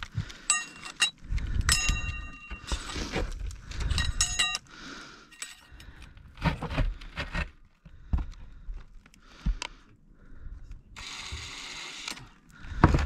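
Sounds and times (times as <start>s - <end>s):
metal tools clinking and scraping: 0.4s - 6.0s
metallic ring: 0.5s - 2.6s, 3.9s - 4.7s.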